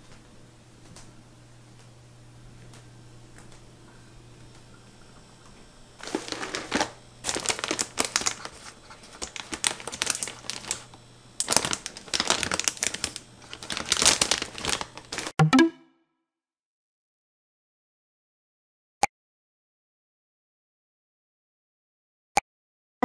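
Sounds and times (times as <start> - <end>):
packaging crinkling: 6.0 - 15.3.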